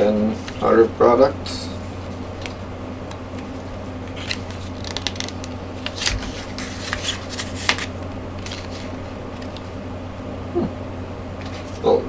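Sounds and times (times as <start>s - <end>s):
steady low hum: 0.0s - 12.0s
paper pages rustling: 3.3s - 9.7s, 11.4s - 11.9s.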